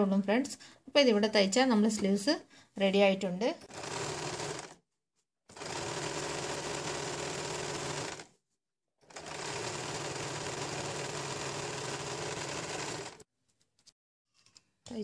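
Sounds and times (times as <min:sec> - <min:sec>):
sewing machine running: 0:03.6 - 0:04.8, 0:05.5 - 0:08.3, 0:09.0 - 0:13.2.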